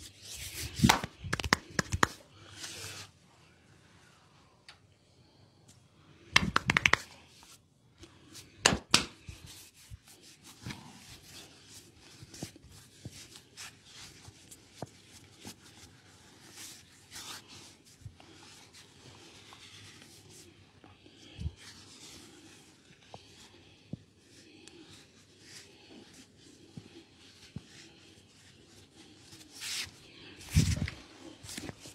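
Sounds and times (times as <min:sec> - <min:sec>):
sharp snaps: 0:00.8 - 0:02.2, 0:06.4 - 0:07.1, 0:08.6 - 0:09.2
hands rubbing softly: 0:09.2 - 0:31.9.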